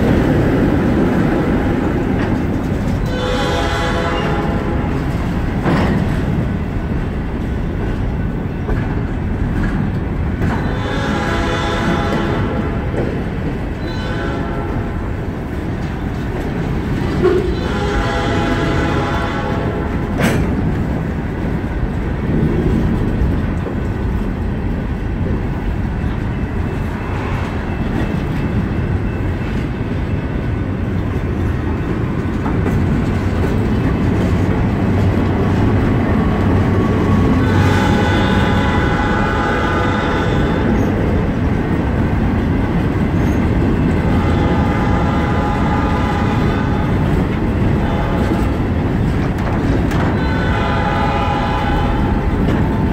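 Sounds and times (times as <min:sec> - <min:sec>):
train wheels rumbling on rails: 0:00.0 - 0:52.9
train horn blast: 0:03.0 - 0:05.0, 0:10.5 - 0:13.1, 0:13.8 - 0:15.1, 0:17.2 - 0:20.2, 0:37.1 - 0:41.1, 0:43.9 - 0:48.7, 0:49.9 - 0:52.8.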